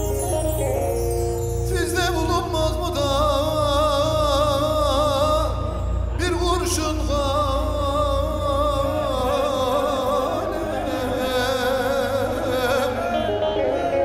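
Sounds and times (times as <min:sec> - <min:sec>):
band music with held melody: 0:00.0 - 0:03.9.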